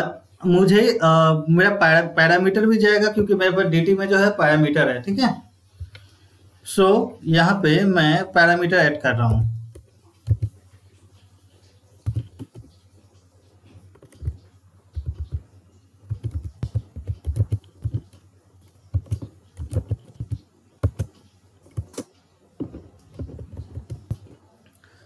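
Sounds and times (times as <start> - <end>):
computer keyboard typing: 9.3 - 10.6, 12.0 - 12.8, 13.8 - 24.4.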